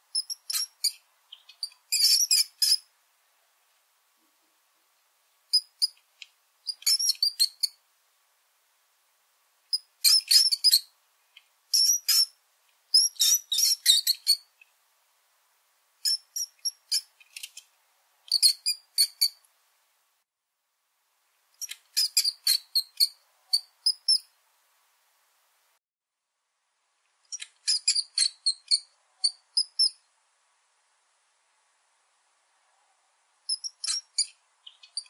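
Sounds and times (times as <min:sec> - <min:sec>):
small rodent squeaking: 0:00.1 - 0:02.9, 0:05.5 - 0:07.8, 0:09.7 - 0:11.0, 0:11.7 - 0:14.7, 0:16.0 - 0:17.7, 0:18.3 - 0:19.4, 0:21.6 - 0:24.4, 0:27.3 - 0:30.1, 0:33.5 - 0:35.0.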